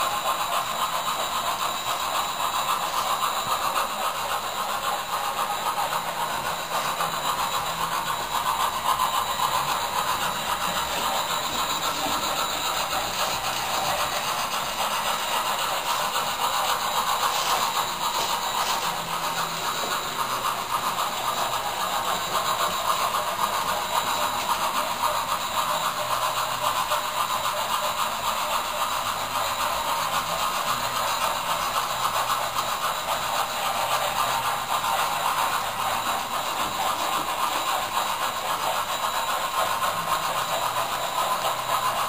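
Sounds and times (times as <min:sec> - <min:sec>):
model train rolling on track: 0:00.0 - 0:42.0.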